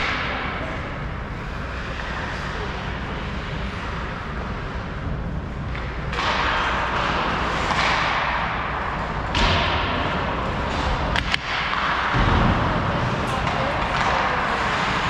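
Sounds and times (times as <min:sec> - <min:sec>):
skates scraping ice: 0:01.3 - 0:09.3, 0:10.0 - 0:15.0.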